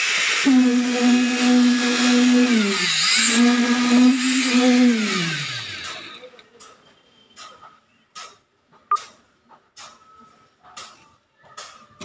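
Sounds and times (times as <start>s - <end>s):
concrete vibrator humming: 0.4s - 6.3s.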